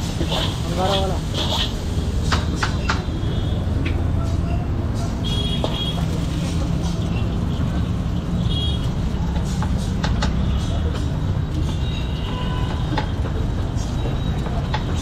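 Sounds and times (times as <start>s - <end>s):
gas burner roaring: 0.0s - 7.6s.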